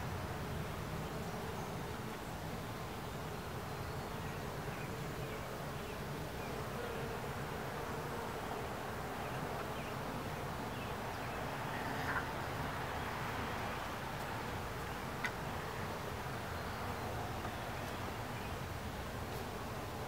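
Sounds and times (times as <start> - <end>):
honeybees buzzing: 0.0 - 20.0.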